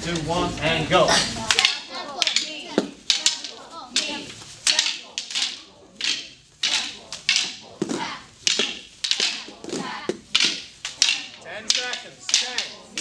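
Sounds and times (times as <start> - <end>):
children calling out: 1.1 - 8.3
training sticks clacking: 1.4 - 13.0.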